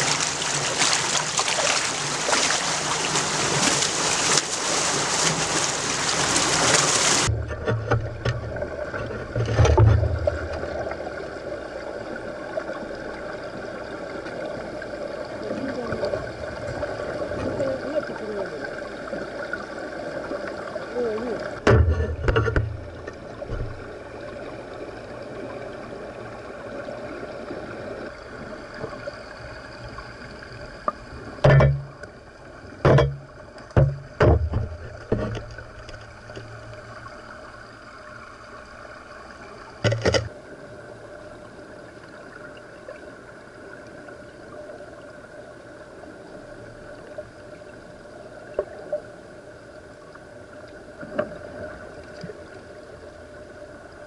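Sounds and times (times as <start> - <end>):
underwater water murmur: 0.0 - 54.0
dull underwater thumps: 6.7 - 10.8, 21.6 - 23.9, 31.4 - 32.1, 32.8 - 36.8, 39.8 - 40.3.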